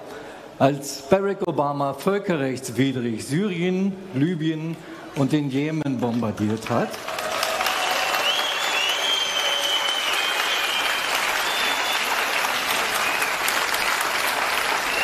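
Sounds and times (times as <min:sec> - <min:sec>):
crowd applauding: 0:06.5 - 0:15.0
high held whistle: 0:08.1 - 0:12.2.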